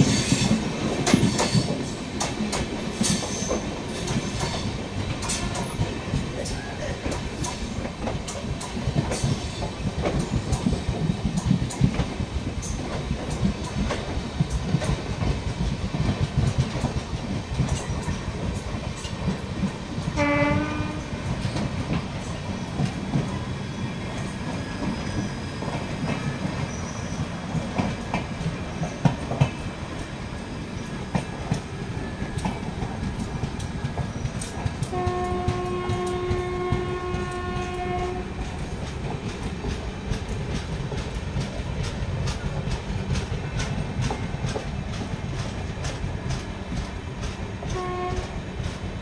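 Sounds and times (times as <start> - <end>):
train rumble and wheel clatter: 0.0 - 49.0
locomotive horn: 20.2 - 21.3, 34.9 - 38.4, 47.7 - 48.3.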